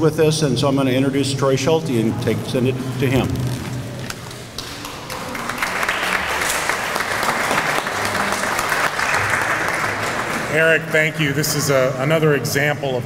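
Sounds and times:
audience applauding: 4.1s - 11.2s.

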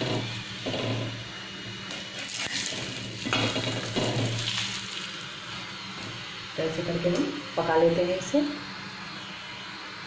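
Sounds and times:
oil sizzling: 0.0s - 7.6s.

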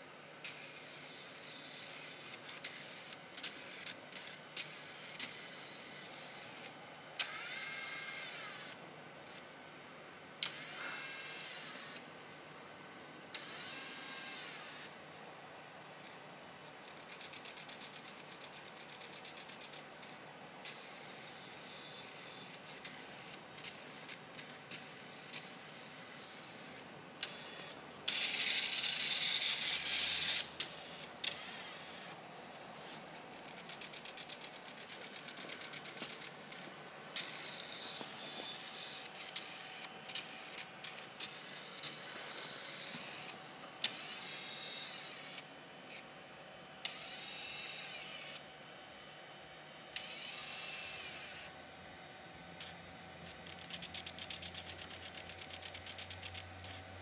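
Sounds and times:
scattered clicks: 33.3s - 36.6s, 52.6s - 56.8s.

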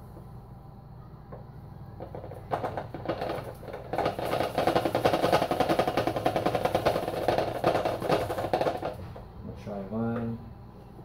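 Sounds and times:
sugar pouring into plastic bottle: 2.0s - 9.1s.

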